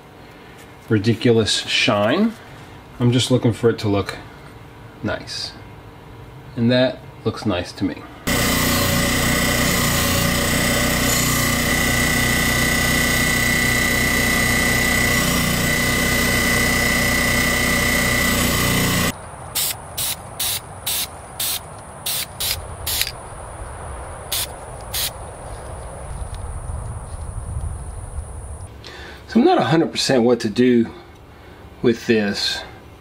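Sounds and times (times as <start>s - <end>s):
bench grinder whining: 8.3s - 19.2s
spray can spraying bursts: 19.6s - 23.1s, 24.3s - 25.1s.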